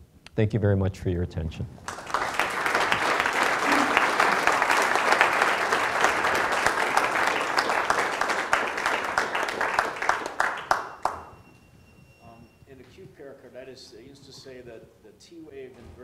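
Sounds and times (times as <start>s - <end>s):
audience applauding: 1.8s - 11.6s.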